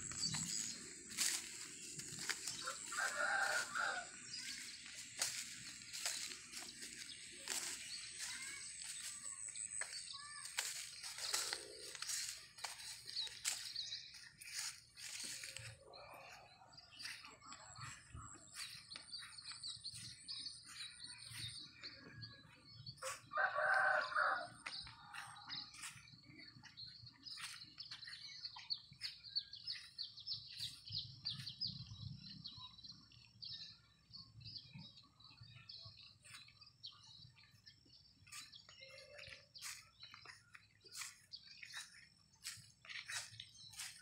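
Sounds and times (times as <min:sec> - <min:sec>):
rooster crowing: 0:02.6 - 0:04.1, 0:23.0 - 0:24.6.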